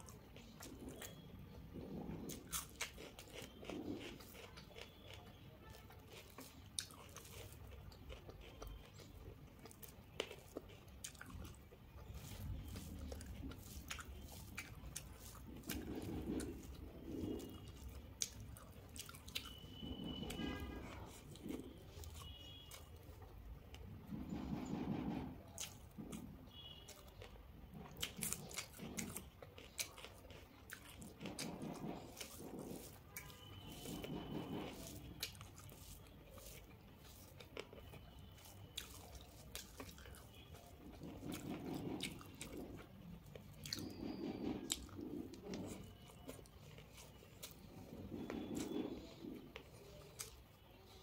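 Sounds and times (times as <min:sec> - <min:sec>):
chewing with small crunches: 0:00.0 - 0:51.0
fingers mixing rice on metal plate: 0:09.4 - 0:23.0, 0:27.9 - 0:50.4.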